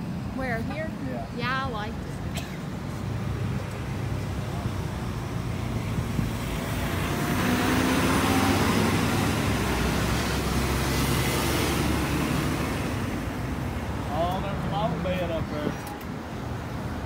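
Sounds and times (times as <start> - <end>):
traffic engines rumbling: 0.0 - 17.0
vehicle passing: 2.9 - 15.8.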